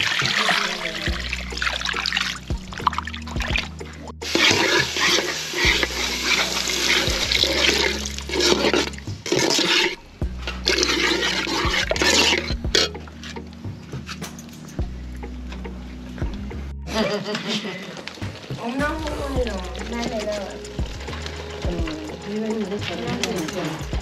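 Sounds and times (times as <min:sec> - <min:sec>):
water splashing into plastic basin: 0:00.0 - 0:09.9.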